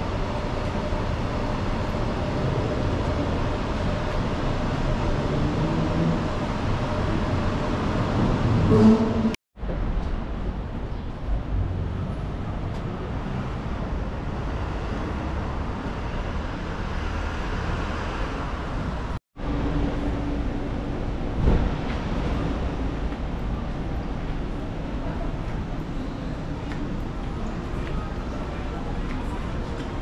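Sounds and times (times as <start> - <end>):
traffic noise: 0.0 - 30.0
thump: 21.4 - 21.9.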